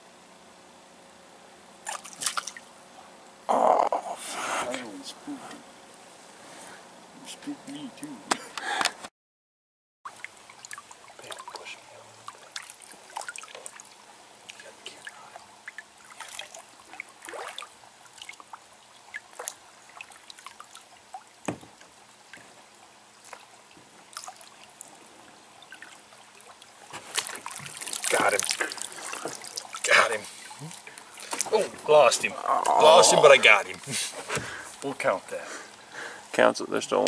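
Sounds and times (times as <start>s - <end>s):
water trickling and dripping: 10.1s - 32.4s.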